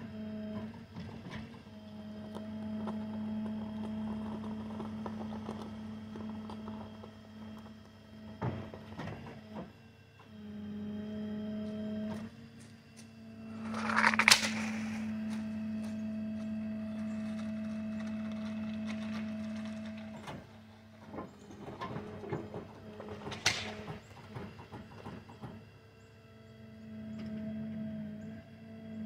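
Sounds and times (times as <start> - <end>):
loud crunch: 13.5 - 15.4
creaks and clicks: 13.5 - 20.4.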